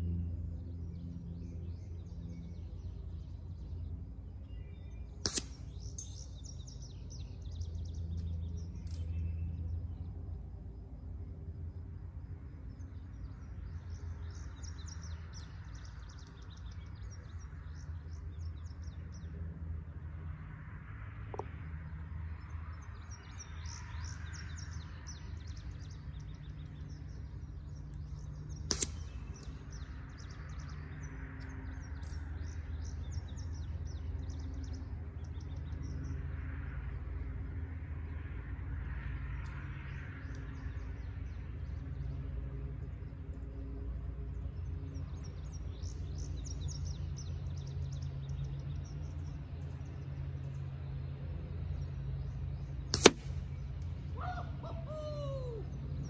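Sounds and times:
low outdoor rumble: 0:00.0 - 0:56.0
songbirds chirping: 0:00.0 - 0:56.0
air rifle shot: 0:05.2 - 0:05.7, 0:28.7 - 0:29.2, 0:52.9 - 0:53.5.

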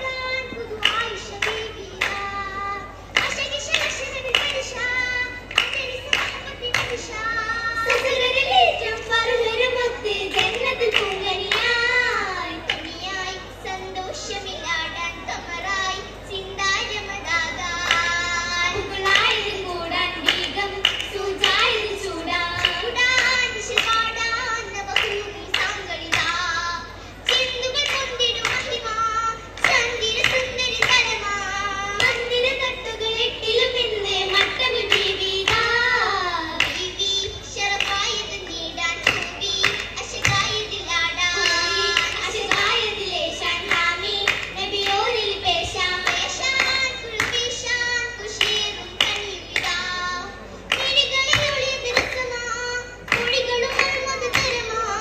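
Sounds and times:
girls singing in chorus: 0:00.0 - 0:55.0
hand claps in unison: 0:00.8 - 0:02.4, 0:03.1 - 0:04.8, 0:05.4 - 0:07.2, 0:10.3 - 0:11.8, 0:20.2 - 0:24.2, 0:24.9 - 0:26.5, 0:27.2 - 0:28.8, 0:29.6 - 0:31.1, 0:34.2 - 0:37.0, 0:37.8 - 0:40.6, 0:41.3 - 0:47.6, 0:48.4 - 0:52.3, 0:53.0 - 0:54.8.

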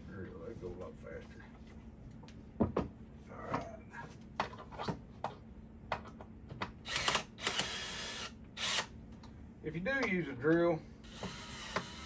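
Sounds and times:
cordless drill driving bolt: 0:06.9 - 0:08.9, 0:11.1 - 0:12.0.

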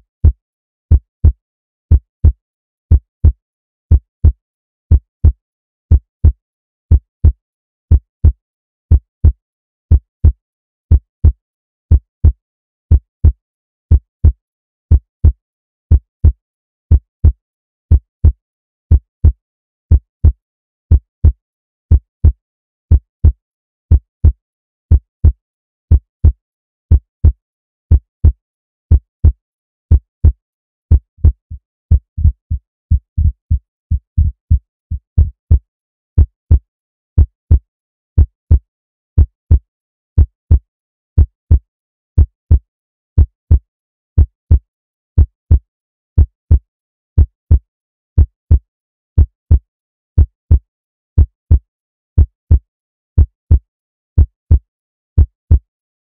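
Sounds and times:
heartbeat thumps: 0:25.9 - 0:35.6.

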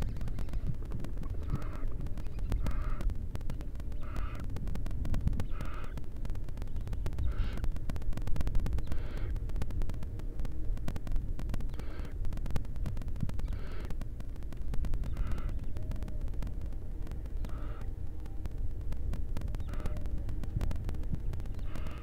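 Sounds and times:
faint ticking: 0:00.0 - 0:22.0
steady low rumble: 0:00.0 - 0:22.0
owls hissing calls: 0:01.4 - 0:03.0, 0:03.9 - 0:04.5, 0:05.4 - 0:06.0, 0:07.2 - 0:07.7, 0:08.8 - 0:09.3, 0:11.7 - 0:12.2, 0:13.4 - 0:13.9, 0:15.0 - 0:16.1, 0:17.4 - 0:17.9, 0:19.6 - 0:20.1, 0:21.6 - 0:22.0.

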